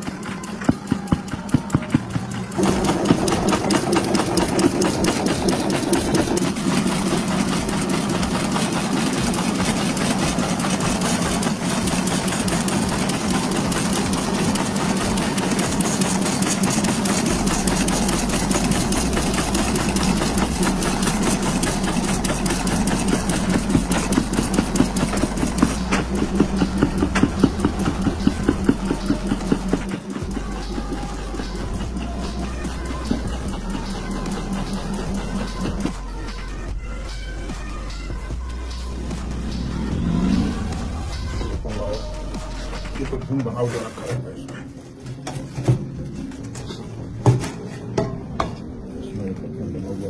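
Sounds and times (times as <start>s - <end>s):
machine motor drone and clatter: 0.0s - 50.0s
deep low hum: 17.3s - 43.4s.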